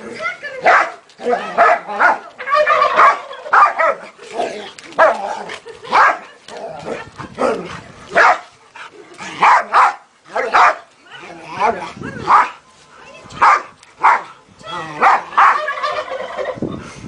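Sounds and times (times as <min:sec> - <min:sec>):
dog barking: 0:08.2 - 0:08.4, 0:09.4 - 0:10.8, 0:13.4 - 0:14.3, 0:15.0 - 0:15.6.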